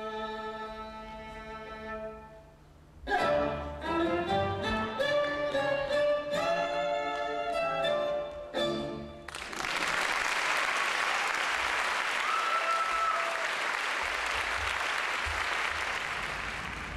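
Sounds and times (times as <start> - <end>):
fiddle-led instrumental music: 0.0 - 2.4, 3.1 - 9.3
audience applause: 9.3 - 16.9
person whooping: 12.2 - 13.5.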